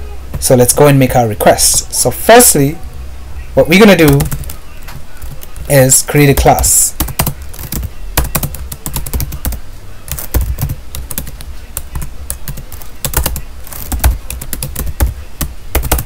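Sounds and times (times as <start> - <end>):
low steady hum: 0.0 - 16.0
computer keyboard typing: 3.8 - 16.0.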